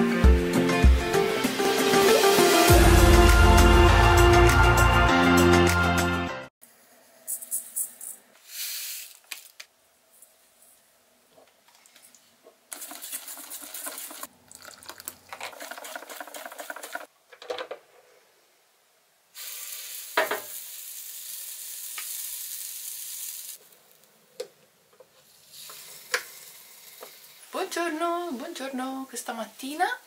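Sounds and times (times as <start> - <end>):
batter stirred in metal bowl: 12.7 - 17.1
batter sizzling in waffle maker: 19.4 - 24.0, 25.2 - 29.9.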